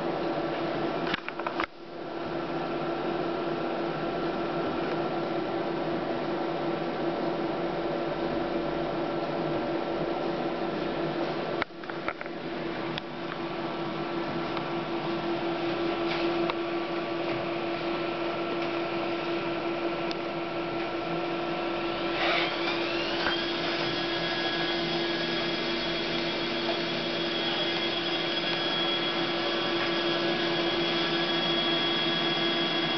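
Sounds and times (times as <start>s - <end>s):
high-pitched whine: 9.8s - 32.9s
label printer mechanical hum: 11.1s - 32.9s.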